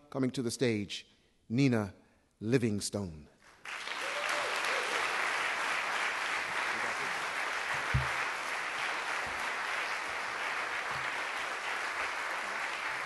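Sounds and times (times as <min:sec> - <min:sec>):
audience applauding: 0:03.5 - 0:13.0
low thump: 0:07.9 - 0:08.2.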